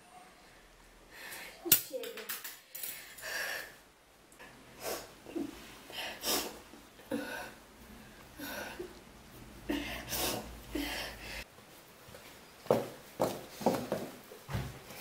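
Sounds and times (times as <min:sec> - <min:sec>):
woman breathing hard: 0:02.8 - 0:03.8, 0:04.4 - 0:09.0, 0:09.6 - 0:11.5.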